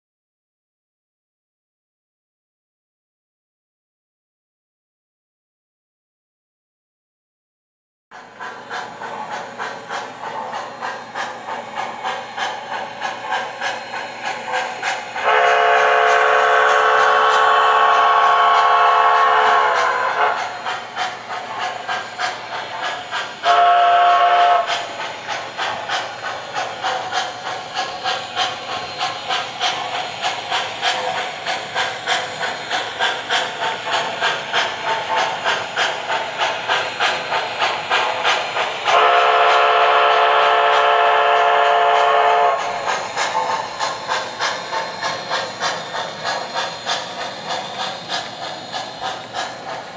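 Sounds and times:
model steam train chuffing: 8.1s - 49.9s
train whistle blasts: 15.2s - 20.4s, 23.4s - 24.7s, 38.9s - 42.7s.

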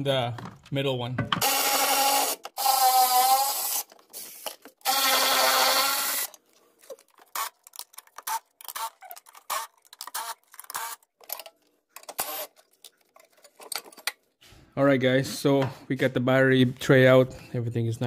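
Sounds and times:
cordless ratchet whirring: 1.4s - 6.4s
light clicks and rattles of parts: 6.3s - 14.3s.

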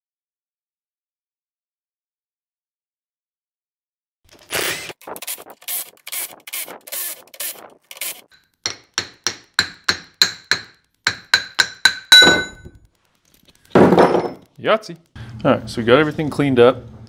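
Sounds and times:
hammer striking metal with ringing: 8.7s - 12.8s.

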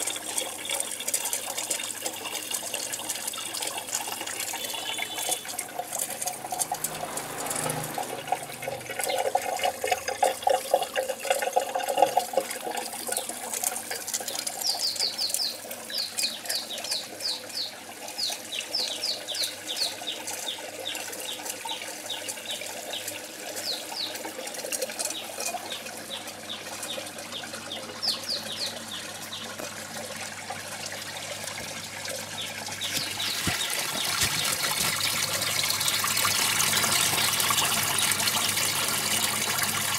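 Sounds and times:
water splashing: 0.0s - 14.6s, 20.2s - 39.9s
water running and trickling: 0.0s - 39.9s
bird chirping: 4.5s - 5.4s, 14.6s - 24.2s, 25.1s - 29.5s, 32.4s - 34.6s.

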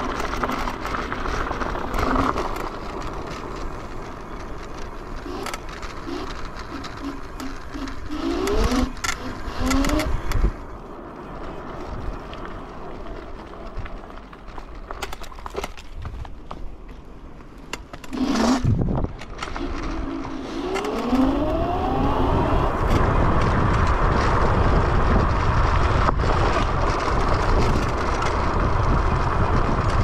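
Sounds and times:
scooter tyre and drive noise: 0.0s - 30.0s
wind rushing over microphone: 5.2s - 14.2s, 18.1s - 30.0s
short rising tones: 19.6s - 23.0s.

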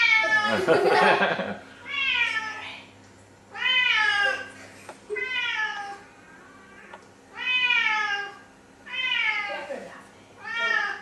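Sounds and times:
cat meowing: 3.5s - 4.5s, 5.2s - 6.0s, 6.6s - 9.6s, 10.4s - 11.0s.

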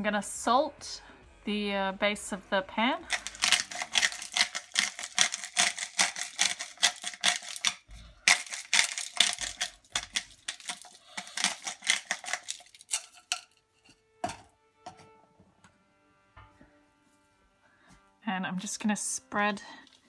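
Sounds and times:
salt grinder crackling clicks: 3.1s - 13.5s.

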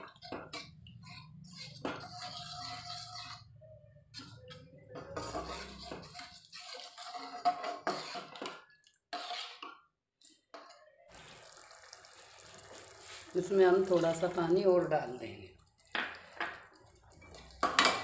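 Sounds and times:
metal spatula scraping a pan: 0.0s - 9.9s.

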